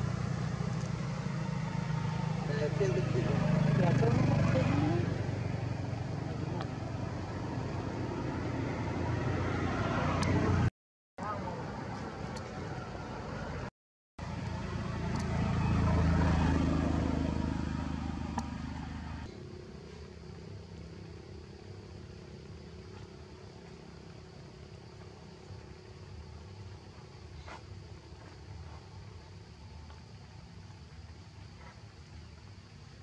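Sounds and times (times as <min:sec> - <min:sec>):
vehicle passing: 0:00.0 - 0:19.3
steady engine hum: 0:00.0 - 0:33.0.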